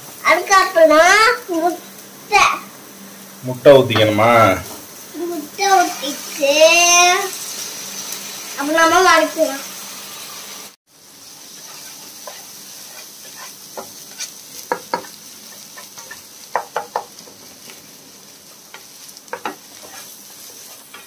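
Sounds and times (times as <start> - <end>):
food sizzling in a frying pan: 0.0 - 21.0
wooden spatula scraping pan: 11.6 - 18.0, 18.7 - 21.0.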